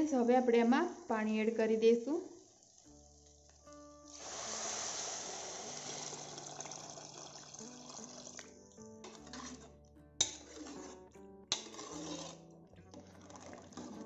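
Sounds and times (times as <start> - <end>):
water pouring and splashing: 2.4 - 8.5, 11.6 - 14.0
ladle stirring rice: 9.0 - 14.0.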